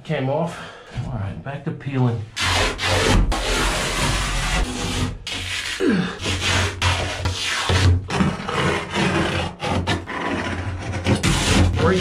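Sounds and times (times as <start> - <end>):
vinyl lining tearing: 2.4 - 8.3.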